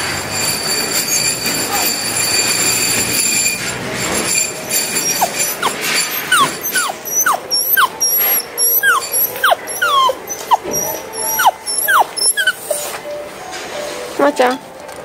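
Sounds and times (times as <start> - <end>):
small dog whining: 4.4 - 13.0.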